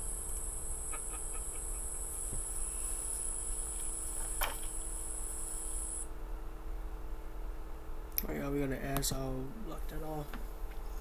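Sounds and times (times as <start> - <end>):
insects trilling: 0.0 - 6.1
faint low hum: 0.0 - 11.0.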